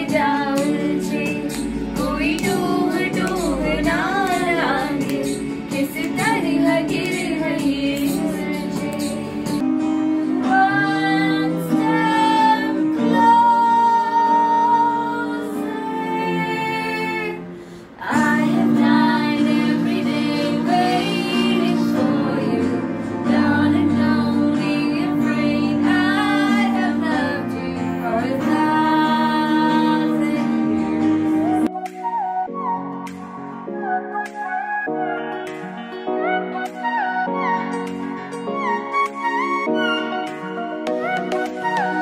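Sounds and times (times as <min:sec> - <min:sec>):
woman and girl singing: 0:00.0 - 0:09.6, 0:10.4 - 0:17.4, 0:18.0 - 0:30.8
karaoke backing track chords: 0:00.0 - 0:42.0.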